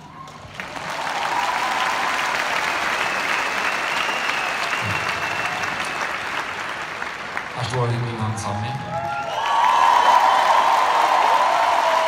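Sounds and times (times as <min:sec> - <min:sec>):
crowd applauding and cheering: 0:00.0 - 0:12.0
high whistle from crowd: 0:02.9 - 0:06.4.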